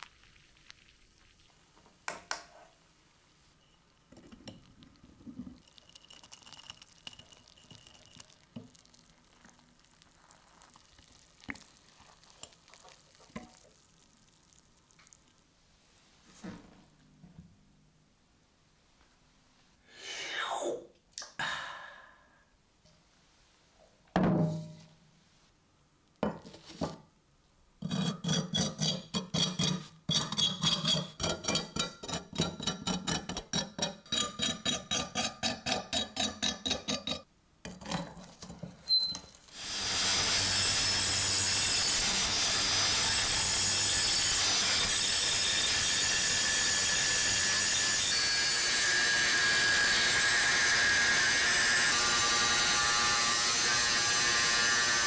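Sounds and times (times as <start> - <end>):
knock: 24.2 - 24.8
angle grinder grinding metal: 39.5 - 55.0.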